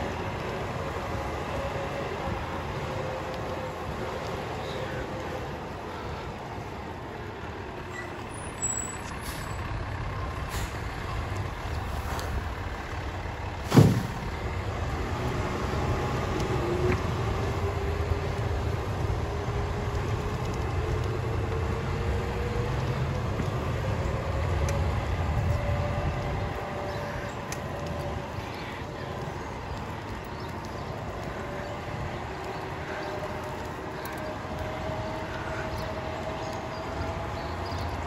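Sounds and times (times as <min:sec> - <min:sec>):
diesel truck engine running: 0:00.0 - 0:20.7
sharp loud bang: 0:13.7 - 0:14.2.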